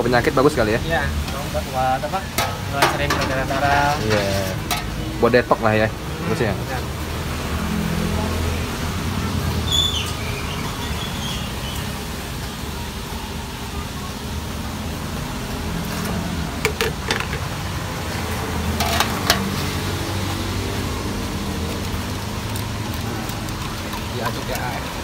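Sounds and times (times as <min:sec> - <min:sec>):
street traffic hum: 0:00.0 - 0:25.0
spoon and strainer clinking on jugs: 0:02.3 - 0:05.2, 0:16.6 - 0:17.6, 0:18.7 - 0:20.0, 0:21.6 - 0:25.0.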